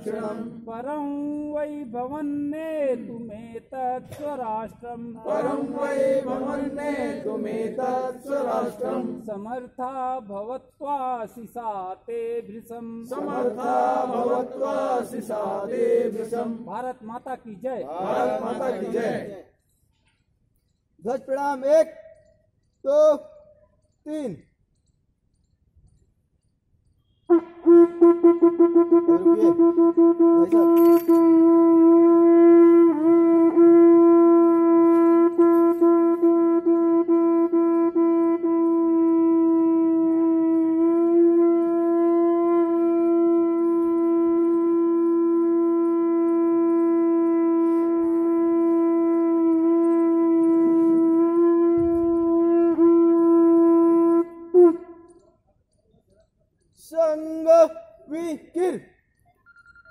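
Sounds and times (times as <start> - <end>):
conch shell long note: 27.2 - 55.2.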